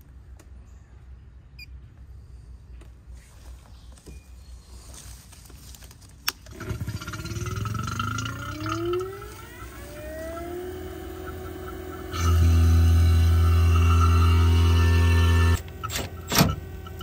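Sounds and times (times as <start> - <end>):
vacuum pump starting up: 6.5 - 17.0.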